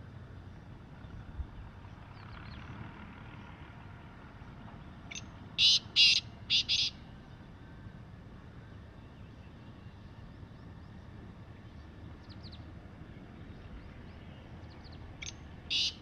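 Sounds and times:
outdoor background rumble: 0:00.0 - 0:16.0
francolin calling: 0:05.1 - 0:07.0, 0:15.2 - 0:16.0
small birds chirping: 0:05.1 - 0:07.4, 0:09.0 - 0:16.0.

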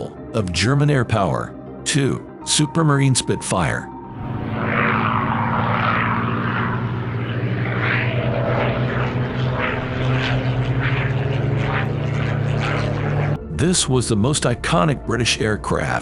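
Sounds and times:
propeller plane engine in flight: 0:04.0 - 0:13.5
rushing propeller and air: 0:04.1 - 0:13.4.

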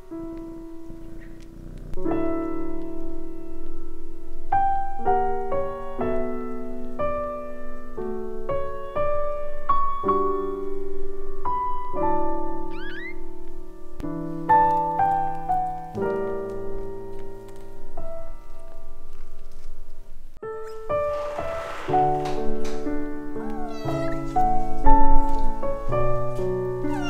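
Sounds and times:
solo piano gentle melody: 0:00.0 - 0:27.0.

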